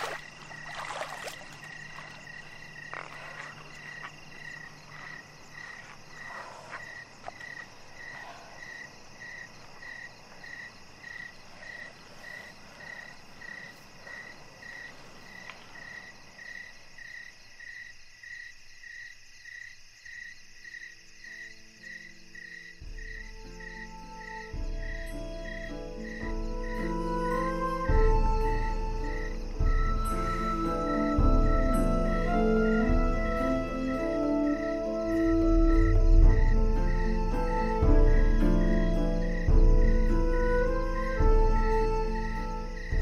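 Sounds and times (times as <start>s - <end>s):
steady insect buzz: 0.0s - 43.0s
low sustained music tones: 21.0s - 43.0s.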